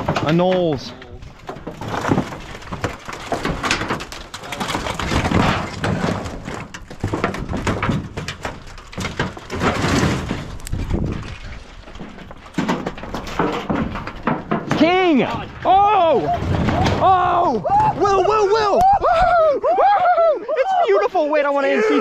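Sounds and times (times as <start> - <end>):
metallic knocks and rasps: 0.0 - 17.2
tin sheets scraping and clattering: 0.0 - 17.2.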